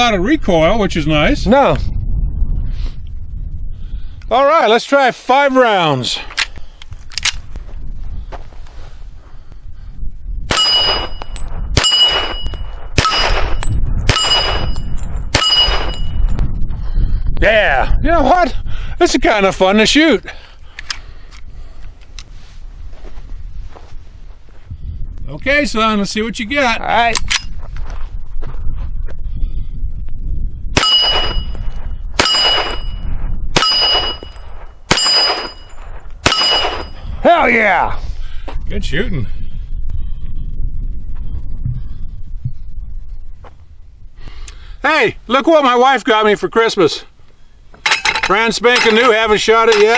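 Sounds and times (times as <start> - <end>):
pistol shots: 10.5 - 11.2, 11.8 - 16.0, 32.2 - 32.9, 33.6 - 36.9
steel plate target ringing: 10.5 - 16.2, 30.8 - 31.6, 32.2 - 33.0, 33.6 - 37.1.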